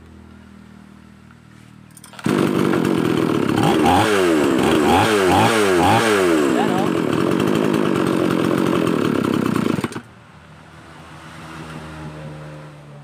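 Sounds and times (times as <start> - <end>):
chainsaw engine running and idling: 2.0 - 10.1.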